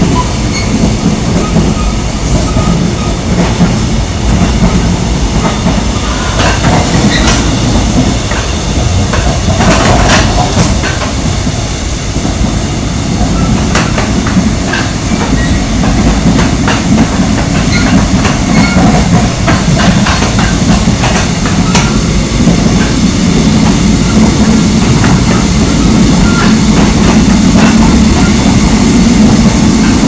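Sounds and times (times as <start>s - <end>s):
train wheels rumbling on rails: 0.0s - 30.0s.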